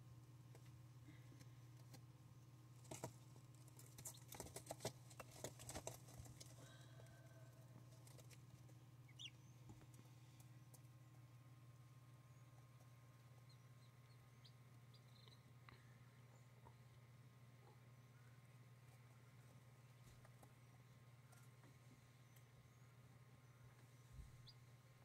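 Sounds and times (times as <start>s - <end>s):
steady low hum: 0.0s - 25.0s
poults pecking at paper: 0.5s - 6.8s, 7.8s - 11.3s.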